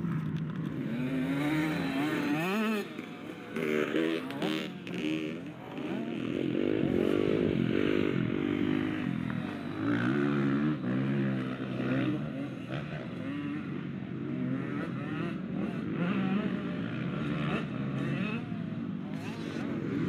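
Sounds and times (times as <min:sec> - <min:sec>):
motocross bike engine revving: 0:00.1 - 0:20.0.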